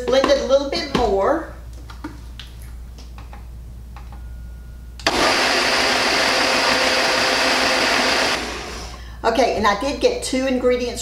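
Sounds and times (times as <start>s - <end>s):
blender running: 5.0s - 9.0s.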